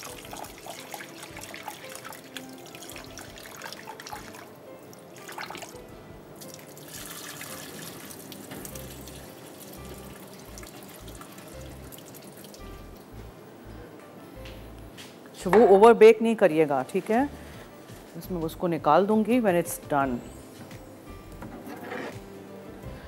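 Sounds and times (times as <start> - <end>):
background music: 0.0 - 23.0
tap water running into bowl: 6.4 - 12.8.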